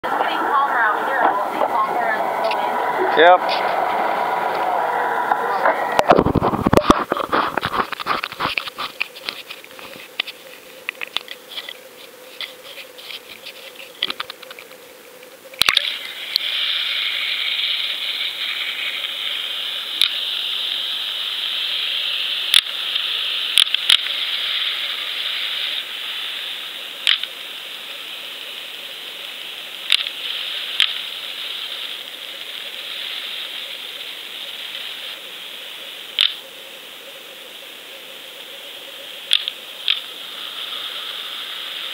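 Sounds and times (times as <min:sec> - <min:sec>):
muffled underwater hiss: 0:00.0 - 0:41.9
camera handling ticks: 0:07.1 - 0:15.9, 0:27.0 - 0:27.3, 0:29.9 - 0:30.1, 0:36.2 - 0:36.4, 0:39.3 - 0:40.0.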